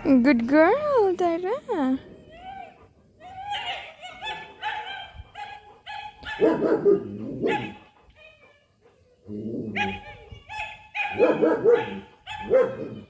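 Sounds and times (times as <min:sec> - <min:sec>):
deeper dog barks: 0:03.5 - 0:07.9, 0:09.5 - 0:13.0
puppy yipping: 0:09.8 - 0:13.0.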